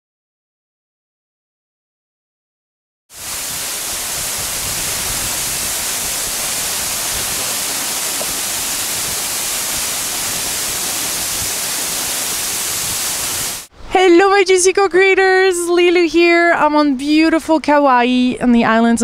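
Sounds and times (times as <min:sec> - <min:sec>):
waterfall rushing water: 0:03.2 - 0:13.7.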